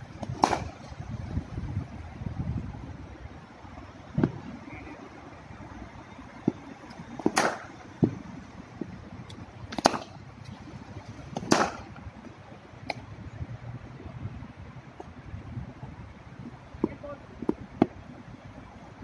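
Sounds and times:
cricket bat striking ball: 0.3 - 0.8, 7.2 - 8.2, 9.7 - 10.2, 11.3 - 12.0.

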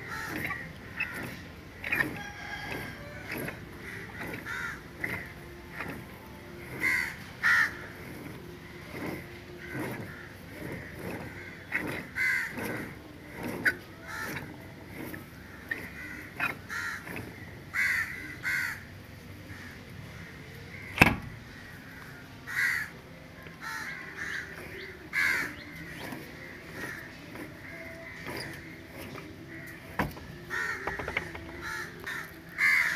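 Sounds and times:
crows cawing: 0.0 - 5.9, 6.7 - 8.0, 8.9 - 13.0, 14.0 - 14.5, 15.4 - 20.9, 21.5 - 32.9.

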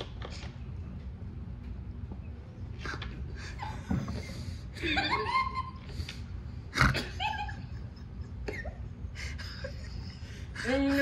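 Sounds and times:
person laughing breathily: 3.3 - 11.0.

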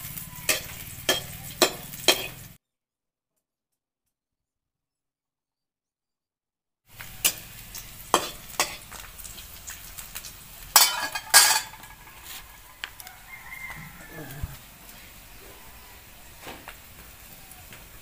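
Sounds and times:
crackling hiss of cooking: 0.0 - 2.6, 6.9 - 18.0.

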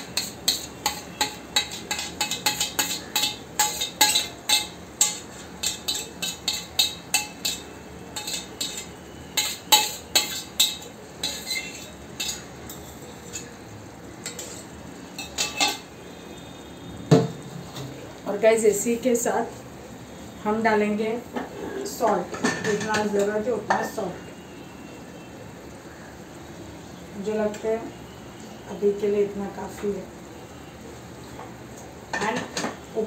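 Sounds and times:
steel spoon scraping metal pan: 0.0 - 13.6, 14.2 - 15.9.

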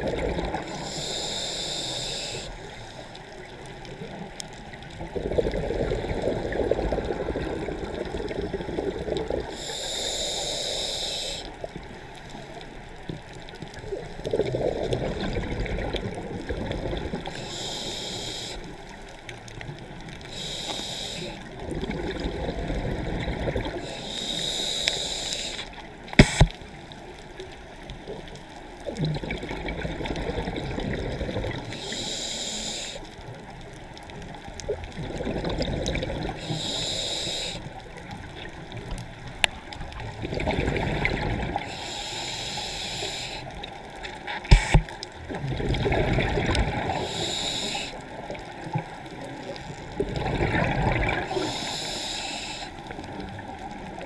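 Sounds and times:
exhaled air bubbling: 0.0 - 2.6, 3.2 - 11.4, 12.9 - 18.8, 19.5 - 26.6, 28.8 - 32.7, 33.4 - 54.0
scuba regulator inhale hiss: 0.6 - 3.4, 9.4 - 11.6, 17.2 - 19.1, 20.2 - 21.5, 23.6 - 26.6, 31.7 - 33.2, 36.3 - 37.8, 41.6 - 43.7, 44.5 - 44.9, 46.7 - 48.4, 51.2 - 53.0
sharp clicks: 26.2 - 26.6.

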